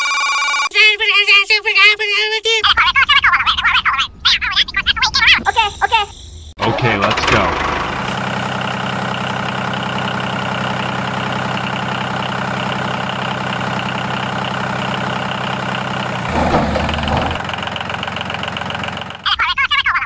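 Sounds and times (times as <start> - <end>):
engine idling: 6.8 - 19.3.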